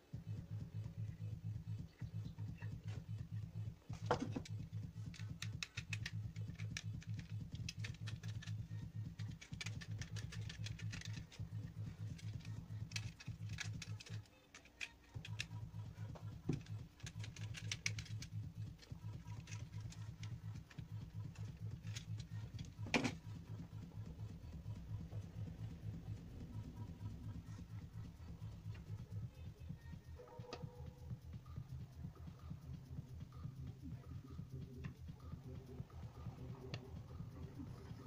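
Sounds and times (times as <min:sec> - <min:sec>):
pulsing low hum: 0:00.0 - 0:14.2, 0:15.1 - 0:38.0
hand tool clicks and taps: 0:04.0 - 0:08.5.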